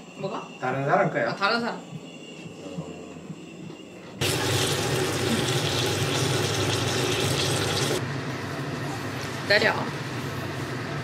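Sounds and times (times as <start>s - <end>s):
meat sizzling in a frying pan: 4.2s - 8.0s.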